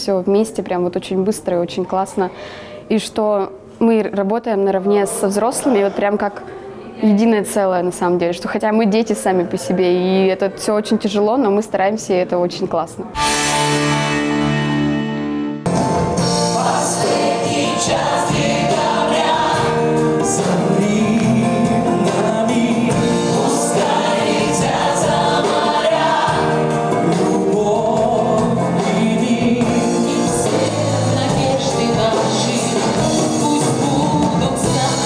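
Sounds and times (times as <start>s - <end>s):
acoustic guitar and band backing: 13.1s - 35.0s
people singing pop song: 16.2s - 35.0s.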